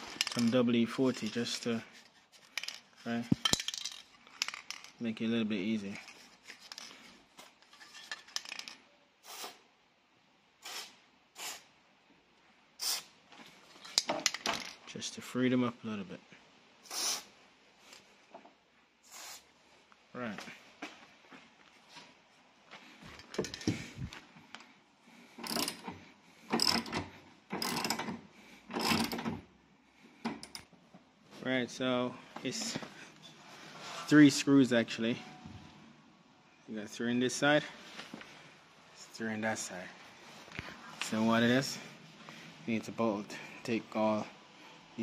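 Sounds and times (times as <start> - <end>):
aerosol spray hissing: 9.2 - 9.6, 10.6 - 11.7, 12.8 - 13.1, 16.9 - 17.3, 19.0 - 19.5
socket ratchet clicking: 25.4 - 29.3.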